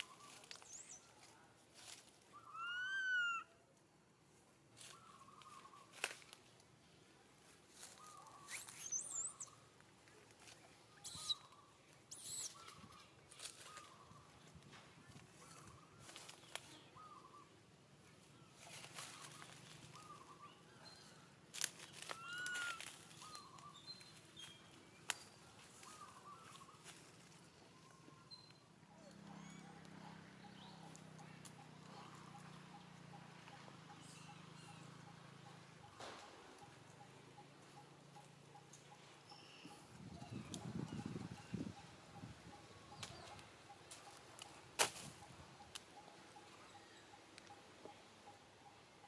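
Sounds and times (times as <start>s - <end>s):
rustling and scraping on bark: 0.0s - 2.3s, 7.4s - 11.5s, 18.6s - 20.3s, 21.5s - 27.6s
monkey squeaking cries: 2.4s - 3.5s, 11.0s - 11.4s, 12.1s - 12.7s, 22.2s - 22.8s.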